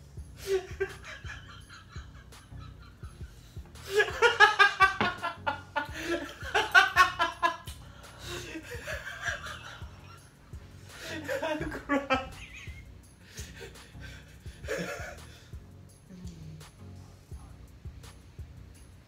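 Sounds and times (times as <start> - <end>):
man laughing hard: 0.4 - 10.2, 10.9 - 15.5.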